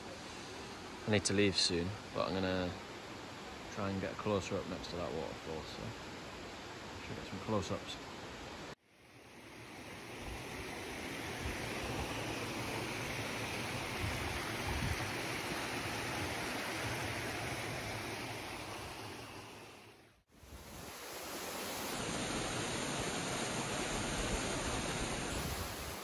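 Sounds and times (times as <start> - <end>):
waterfall pouring over rock: 9.5 - 19.9, 20.8 - 26.0.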